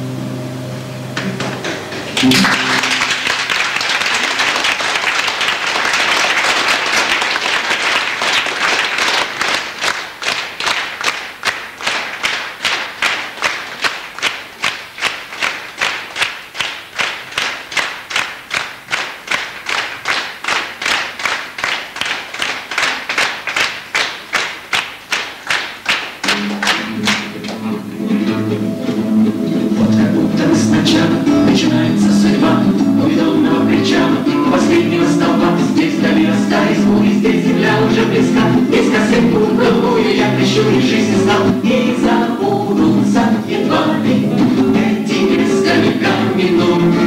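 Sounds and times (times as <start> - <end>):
acoustic guitars: 0.0 - 3.8, 26.3 - 47.0
audience clapping in unison: 1.2 - 27.8, 30.4 - 47.0
audience applause: 1.2 - 28.4
people singing: 26.3 - 47.0.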